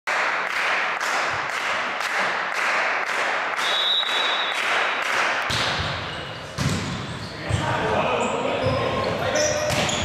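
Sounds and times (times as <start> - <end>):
spectators clapping in rhythm: 0.1 - 5.5
high whistle tone: 3.6 - 4.6.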